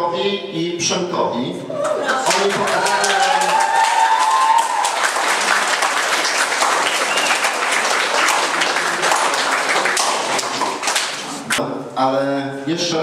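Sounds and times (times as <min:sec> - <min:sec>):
audience applauding: 0:01.8 - 0:11.6.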